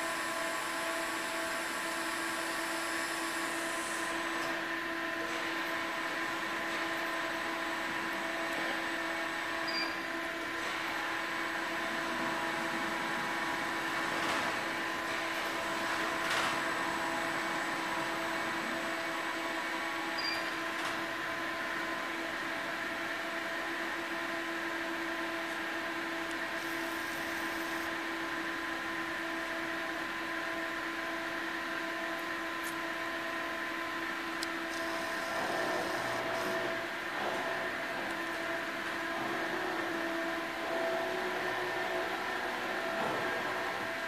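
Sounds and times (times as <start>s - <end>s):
forklift motors whining: 34.4s - 44.0s.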